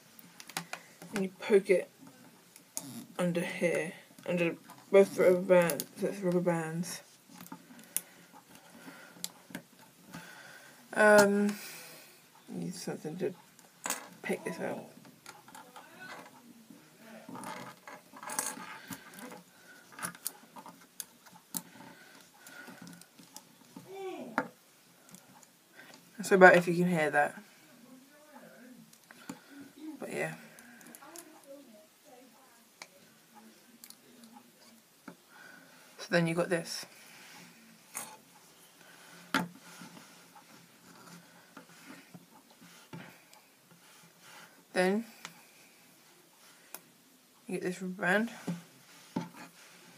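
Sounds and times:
faint ticks and rustles: 0.0s - 26.6s, 27.2s - 36.2s, 36.8s - 49.9s
pencils clicking and scratching: 0.1s - 1.6s, 17.2s - 23.9s, 37.3s - 45.7s, 48.3s - 49.9s.

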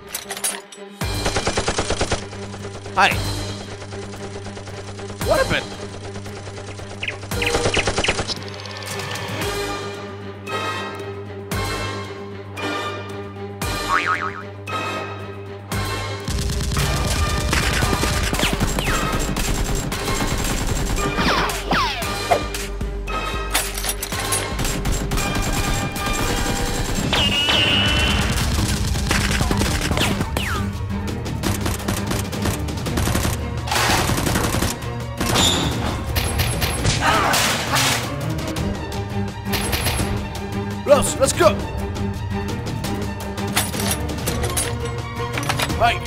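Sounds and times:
background music: 0.0s - 46.0s
rapid gunfire effects: 1.0s - 8.4s, 16.2s - 21.7s, 24.5s - 30.6s, 31.4s - 36.8s.

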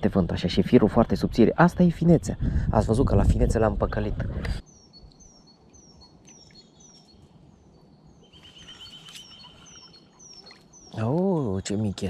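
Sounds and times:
low wind noise: 0.0s - 11.8s
bird rapid trill: 8.2s - 11.0s.

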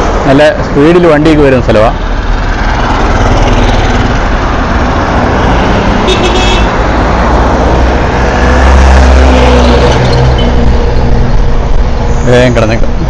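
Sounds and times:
road traffic passing: 0.0s - 13.0s.

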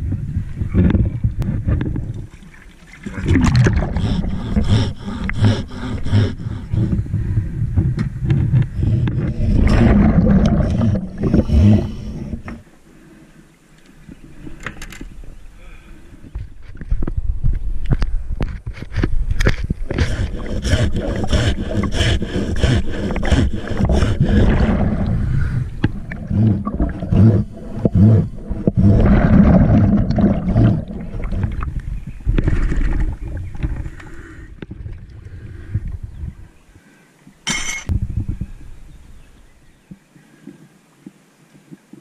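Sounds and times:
water sloshing and bubbling: 0.0s - 15.4s, 16.2s - 36.6s
scuba exhaust bubbles: 3.0s - 7.1s, 8.7s - 12.6s, 20.0s - 34.0s.

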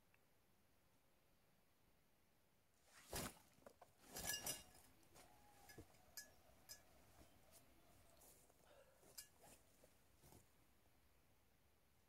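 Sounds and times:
backpack rustling: 2.9s - 5.9s
small hard items clinking: 4.0s - 6.9s.

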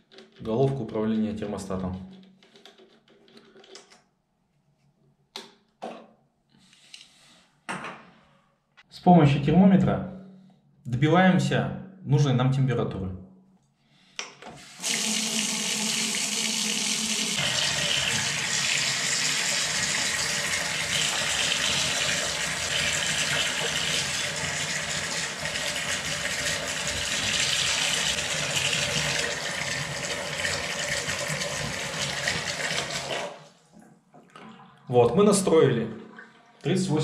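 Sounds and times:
water running into bathtub: 14.6s - 33.6s.

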